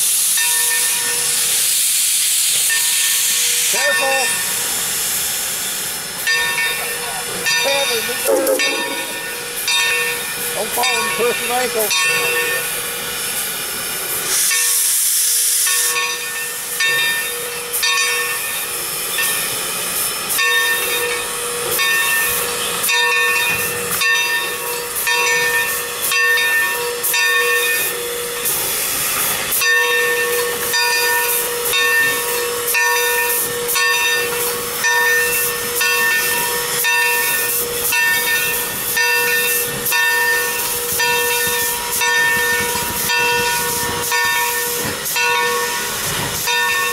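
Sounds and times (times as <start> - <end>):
steam hissing: 0.0 - 46.9
locomotive bell ringing: 0.4 - 1.4, 2.7 - 4.6, 6.2 - 13.0, 15.7 - 19.6, 20.3 - 28.6, 29.5 - 46.9.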